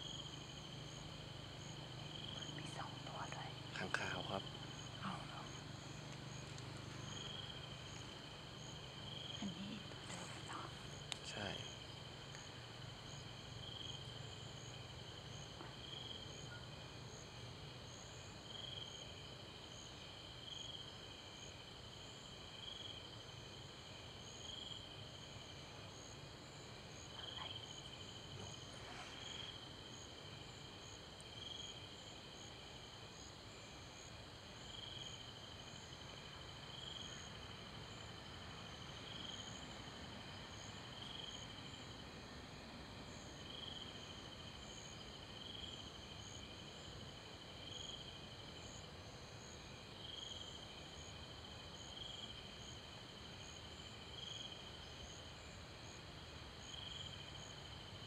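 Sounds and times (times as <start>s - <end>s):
fast insect chirping: 0.0s - 16.6s
insects trilling: 0.0s - 58.0s.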